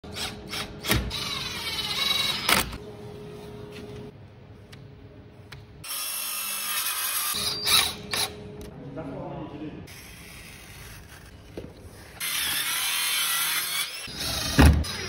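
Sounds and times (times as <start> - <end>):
screwdriver clicking and whirring: 5.8 - 8.4
circular saw cutting wood: 12.2 - 15.0.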